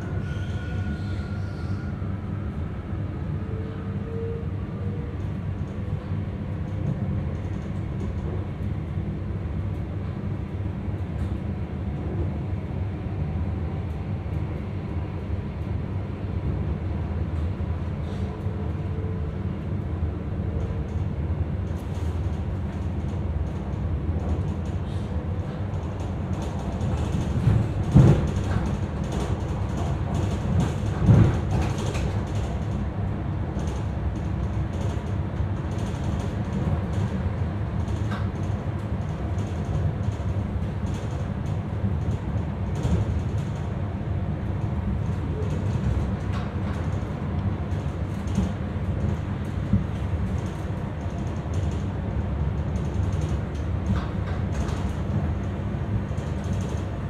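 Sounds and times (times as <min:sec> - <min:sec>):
train creaks and knocks: 0:00.0 - 0:02.2, 0:20.5 - 0:43.8, 0:44.4 - 0:57.0
train rumbling on track: 0:00.0 - 0:57.0.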